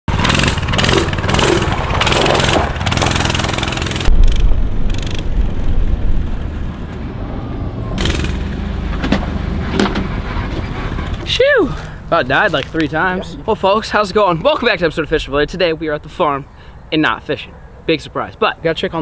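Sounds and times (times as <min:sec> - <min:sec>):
mini bike engine running: 0:00.1 - 0:05.2, 0:08.0 - 0:09.2.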